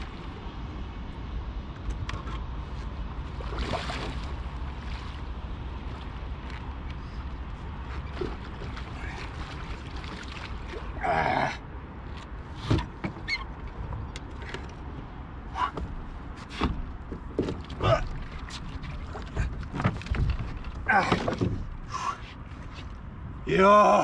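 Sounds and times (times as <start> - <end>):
steady low rumble: 0.0 - 12.6
knocks and thuds against hull: 12.6 - 13.3, 15.6 - 21.9.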